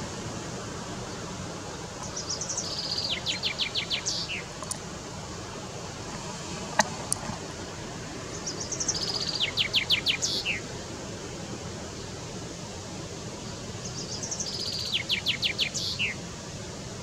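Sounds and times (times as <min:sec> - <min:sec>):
chaffinch singing: 0:01.9 - 0:04.8, 0:08.3 - 0:10.7, 0:13.5 - 0:16.2.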